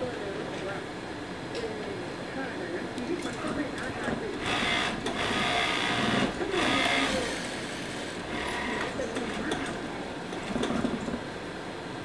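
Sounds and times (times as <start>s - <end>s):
industrial sewing machine stitching: 4.4s - 9.8s.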